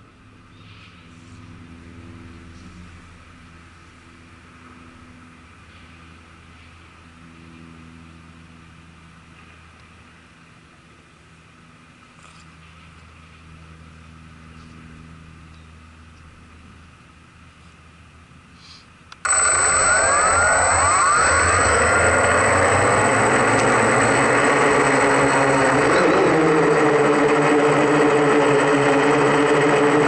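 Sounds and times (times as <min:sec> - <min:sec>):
drone motors humming: 0:19.2 - 0:30.0.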